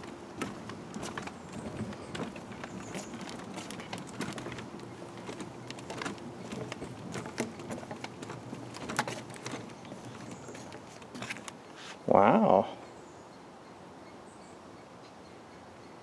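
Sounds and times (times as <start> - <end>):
stroller wheels rattling on wooden deck: 0.0 - 11.7.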